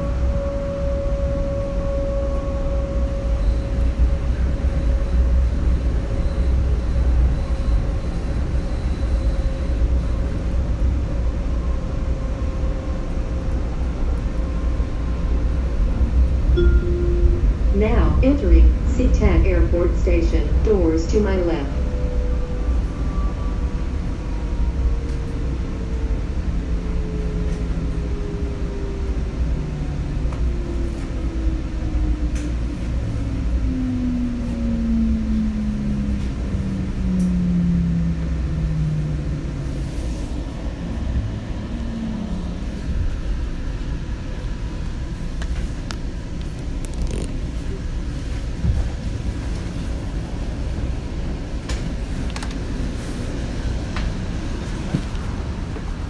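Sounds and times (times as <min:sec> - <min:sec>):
train rumbling: 0:00.0 - 0:56.0.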